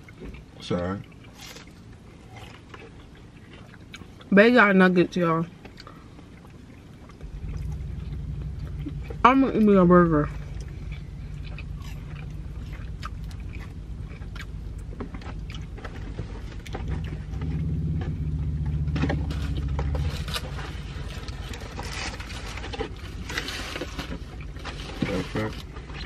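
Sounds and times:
car hum: 0.0 - 26.0
low rumble: 5.6 - 25.8
paper bag and wrappers rustling: 19.2 - 26.0.

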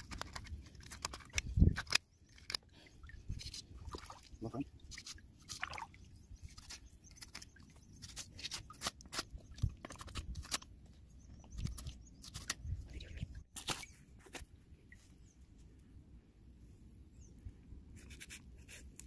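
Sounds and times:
knife cutting through hide: 6.5 - 10.6.

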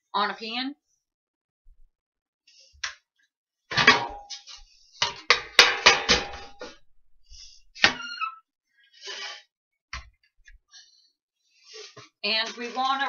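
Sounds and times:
metal baking sheet clattering: 5.0 - 6.8.

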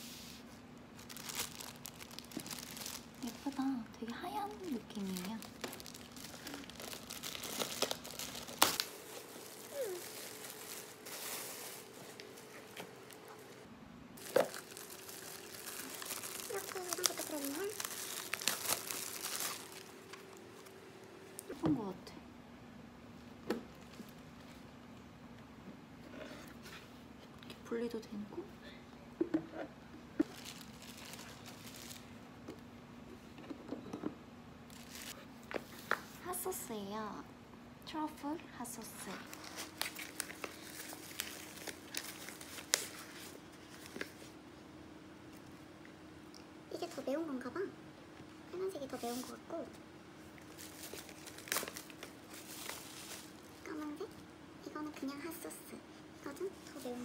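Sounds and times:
plastic wrapping crinkling: 0.9 - 20.8, 30.2 - 32.1, 34.7 - 35.2, 38.9 - 44.4, 50.3 - 54.2.

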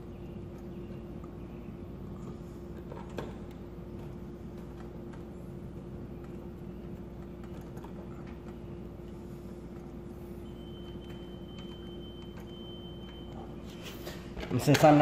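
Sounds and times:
low hum: 0.0 - 14.4
faint high whine: 6.1 - 14.4
faint held tone: 10.1 - 14.2.

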